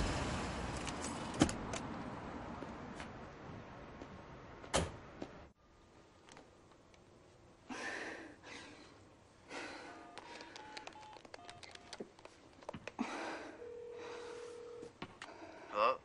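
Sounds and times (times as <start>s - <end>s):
phone ringing tone: 9.9s - 12.0s, 13.5s - 14.9s
cellphone keypad beeps: 10.0s - 12.0s.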